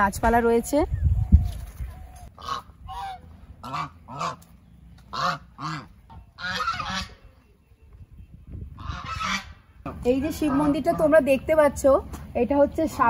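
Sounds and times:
geese honking: 0:02.3 - 0:07.3, 0:08.7 - 0:11.3.

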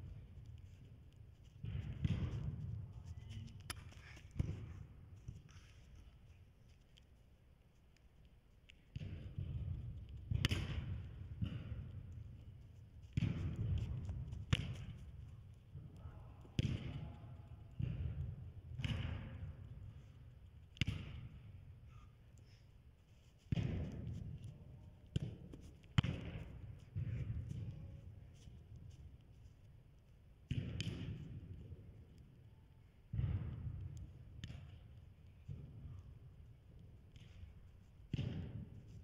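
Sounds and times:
ball kicks echoing: 0:01.5 - 0:05.4, 0:13.1 - 0:15.0, 0:25.1 - 0:27.8.

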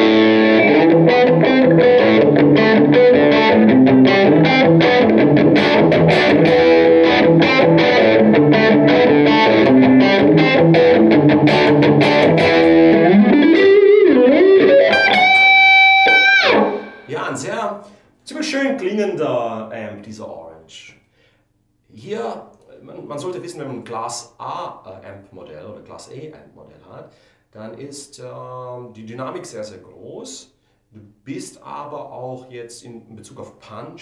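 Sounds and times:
overdriven electric guitar lead: 0:00.0 - 0:17.1.

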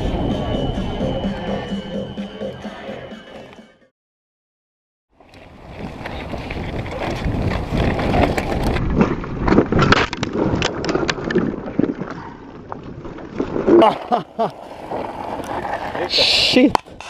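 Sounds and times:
wind rushing over microphone: 0:00.0 - 0:01.7, 0:05.5 - 0:11.7
bike tyres rumbling over gravel: 0:05.2 - 0:16.1.

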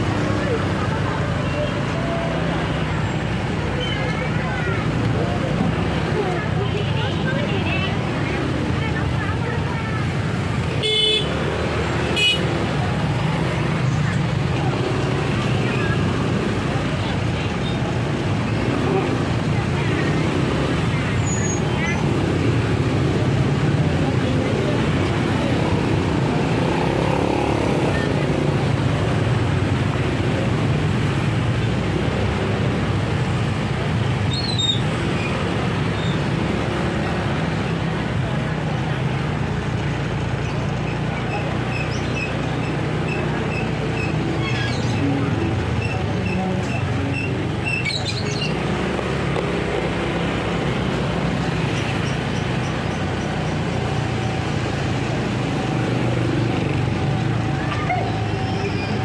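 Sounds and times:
motor scooter engines running: 0:00.0 - 0:59.0
traffic din: 0:00.0 - 0:59.0.

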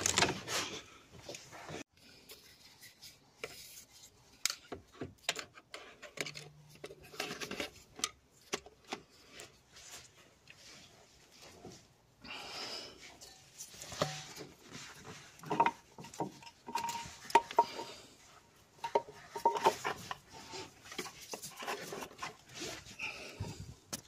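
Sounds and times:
hand tool clicking and scraping: 0:15.4 - 0:18.1.

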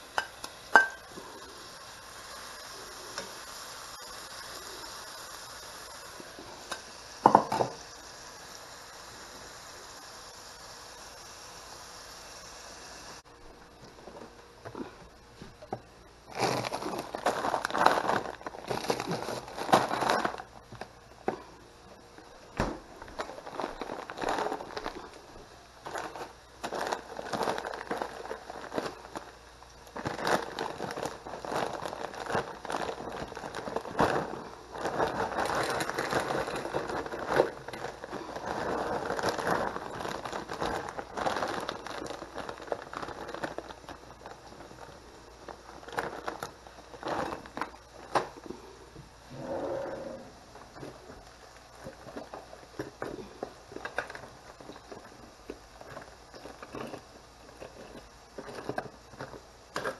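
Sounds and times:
plastic bags crinkling: 0:16.2 - 0:21.6, 0:22.2 - 0:48.6, 0:49.4 - 0:59.9
frozen vegetables poured onto plate: 0:16.3 - 0:20.5, 0:23.0 - 0:29.3, 0:29.9 - 0:48.6.

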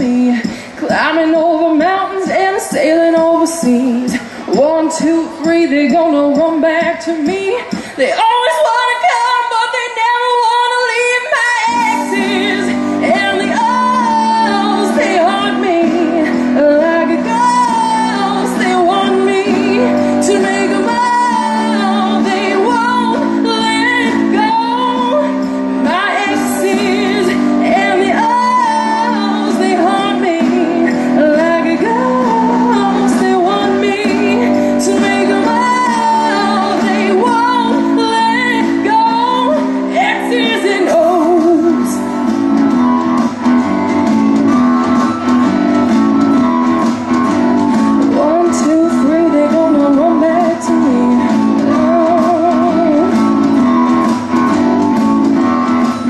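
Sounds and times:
woman singing: 0:00.0 - 0:43.0, 0:46.2 - 0:56.0
pop-rock backing music with guitar: 0:00.0 - 0:56.0.

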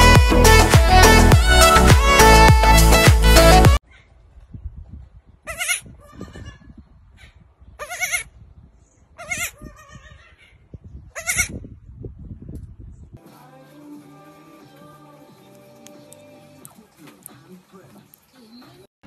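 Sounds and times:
baby goat bleating: 0:05.5 - 0:06.7, 0:07.8 - 0:08.3, 0:09.2 - 0:10.5, 0:11.2 - 0:11.6.

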